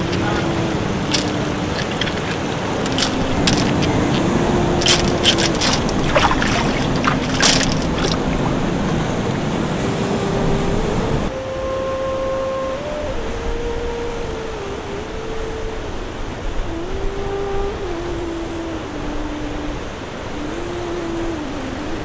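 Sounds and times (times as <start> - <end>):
sharp clicks and splashes: 0.0 - 8.6
surf washing over rocks: 0.0 - 9.4.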